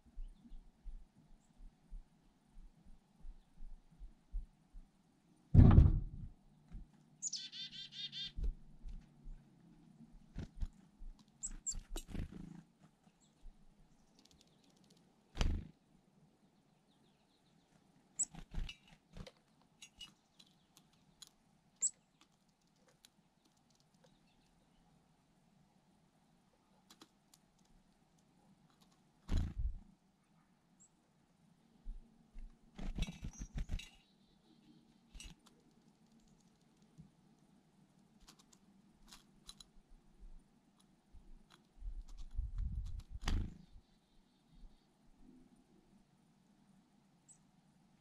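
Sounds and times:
dull thumps: 5.6s - 6.2s
chickadees chirping: 7.2s - 8.4s, 11.4s - 12.3s.

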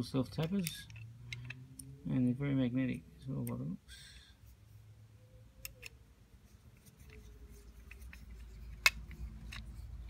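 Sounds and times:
screwdriver clicks and scrapes: 6.8s - 10.0s.

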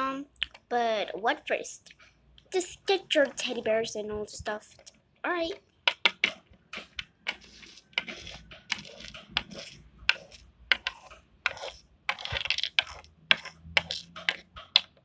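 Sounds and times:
plastic toy pieces clicking on wood: 5.8s - 15.0s.

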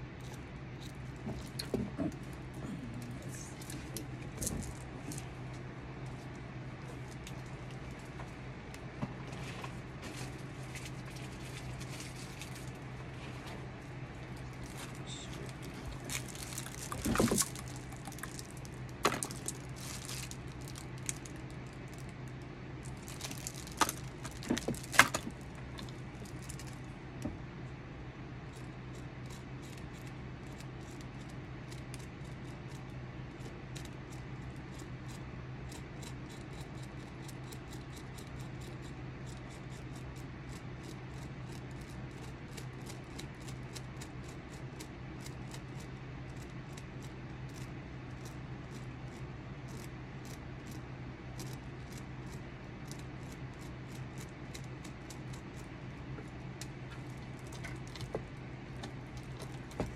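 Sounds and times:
steady low hum: 0.0s - 59.9s
carving tool scraping wood: 28.5s - 56.3s.

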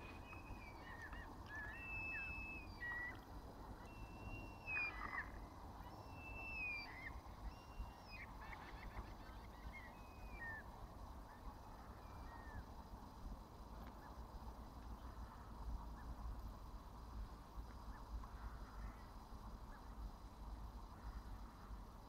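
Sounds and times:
birds calling: 0.0s - 10.6s.

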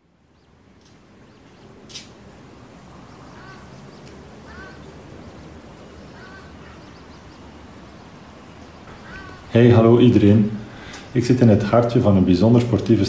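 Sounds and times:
outdoor background noise: 0.0s - 13.0s
duck quacking: 3.4s - 3.7s, 4.5s - 4.8s, 6.1s - 6.8s, 9.0s - 9.5s.

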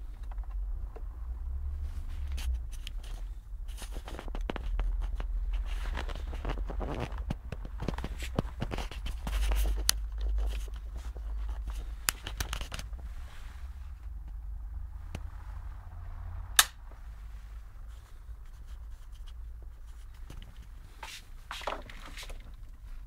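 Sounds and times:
sharp loud click: 16.6s - 16.8s.

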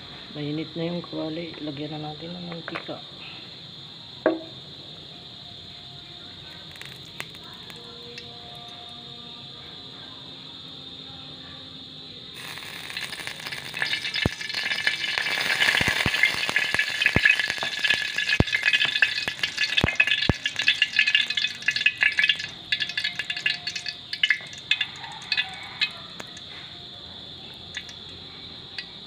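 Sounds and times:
oil crackling and sizzling: 5.7s - 9.2s, 12.3s - 26.6s, 27.4s - 29.0s
oil pouring into a wok: 6.6s - 8.9s, 12.4s - 26.5s, 27.7s - 28.2s.

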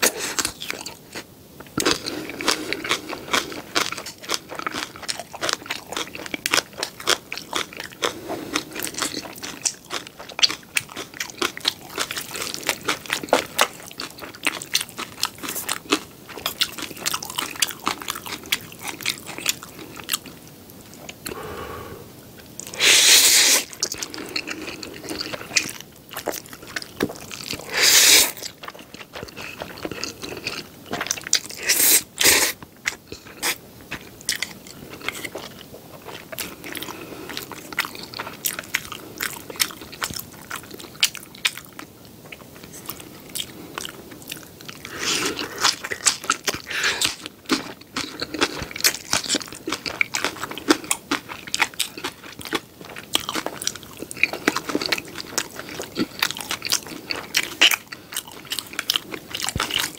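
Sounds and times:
wet chewing and crunching: 0.0s - 21.4s, 23.4s - 59.9s
noodle slurps: 22.7s - 23.7s, 27.6s - 28.4s.

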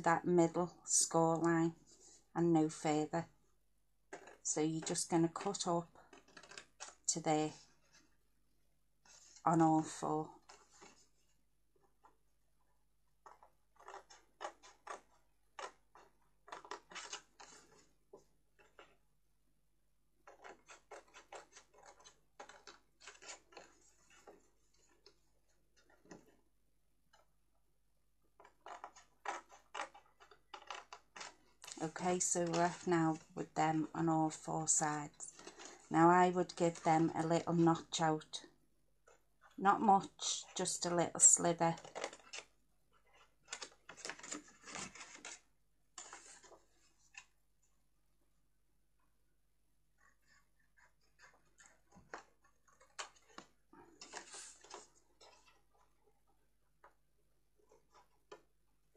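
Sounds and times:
scissors snipping cardstock: 4.1s - 7.1s, 13.2s - 17.8s, 20.2s - 24.4s, 28.4s - 33.3s.

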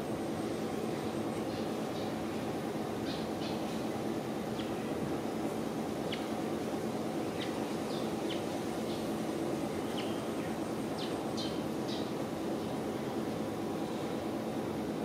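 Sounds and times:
low background hum: 0.0s - 15.0s
birds chirping: 2.9s - 13.0s.

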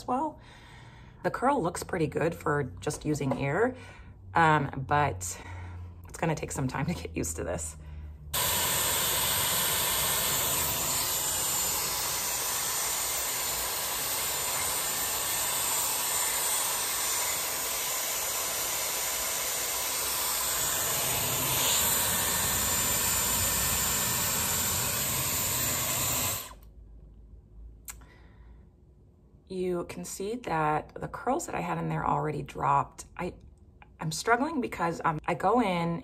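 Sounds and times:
hair styler blowing air: 8.4s - 26.6s.

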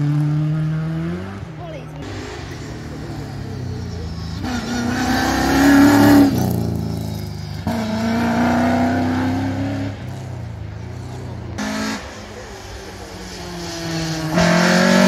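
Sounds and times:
car engine revving: 0.0s - 15.0s.

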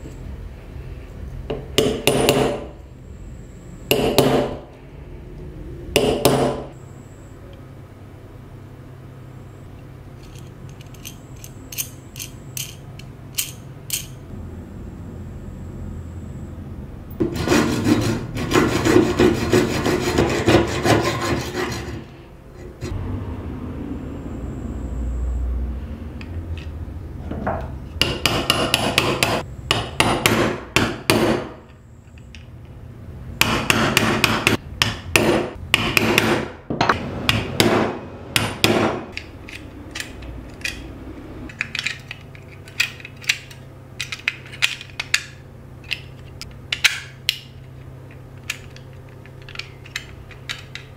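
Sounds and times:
hacksaw cutting steel: 17.2s - 22.1s.

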